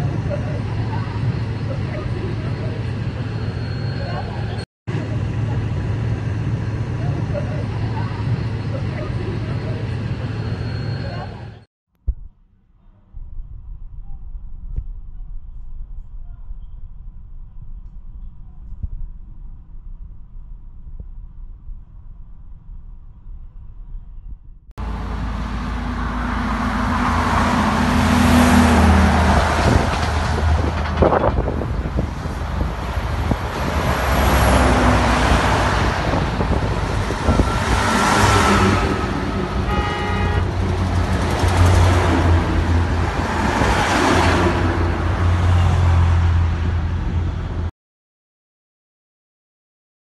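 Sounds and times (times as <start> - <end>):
vehicles passing on highway: 24.8 - 47.7
car horn toot: 38.9 - 40.6.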